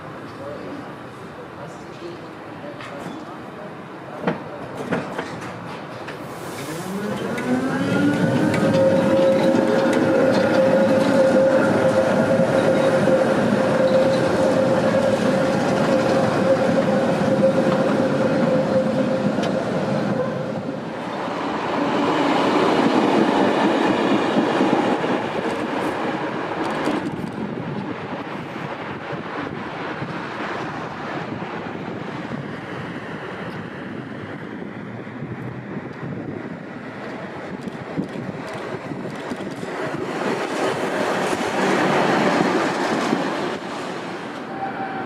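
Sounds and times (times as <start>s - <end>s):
steel wheels on rail: 4.2s - 31.0s.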